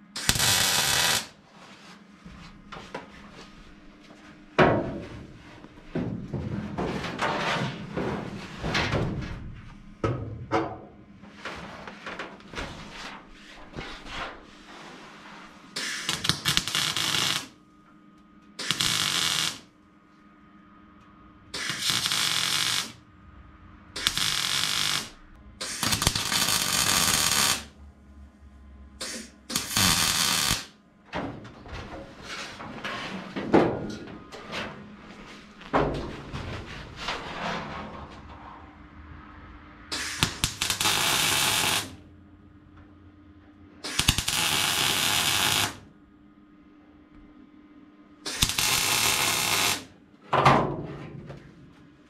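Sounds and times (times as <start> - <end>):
welding hiss: 0.1 - 1.3, 15.8 - 17.5, 18.6 - 19.7, 21.6 - 23.0, 24.0 - 27.7, 29.0 - 30.7, 39.9 - 42.0, 43.8 - 45.8, 48.3 - 49.9.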